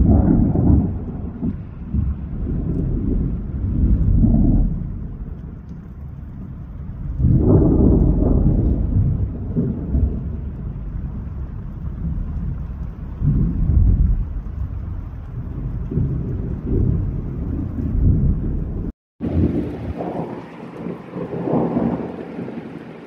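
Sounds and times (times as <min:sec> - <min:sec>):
heavy rain: 0:00.0 - 0:23.0
thunder rolling: 0:00.0 - 0:23.0.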